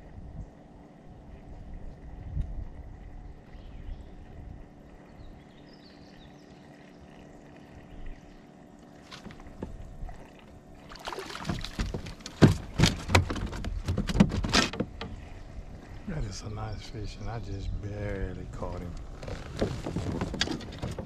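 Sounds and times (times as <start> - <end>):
fish splashing in water: 9.0 - 13.8.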